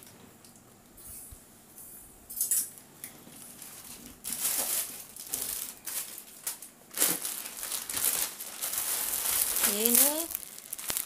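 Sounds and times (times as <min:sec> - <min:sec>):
fabric rustling: 0:06.9 - 0:11.0.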